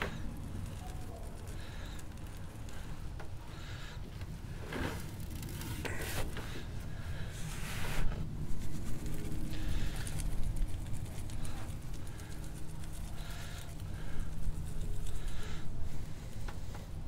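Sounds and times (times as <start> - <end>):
hands rubbing and rustling meat: 7.5 - 16.7.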